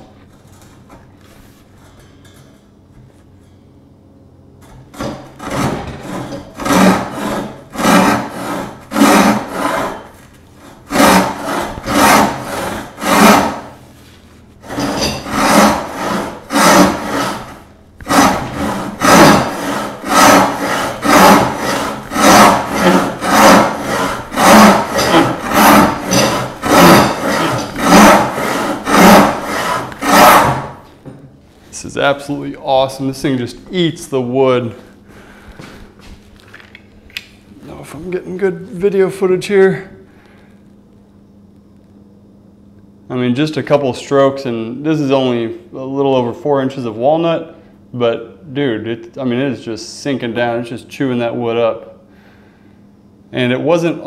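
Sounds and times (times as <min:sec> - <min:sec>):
hand saw rasping through wood: 0:04.9 - 0:13.8, 0:14.6 - 0:30.8.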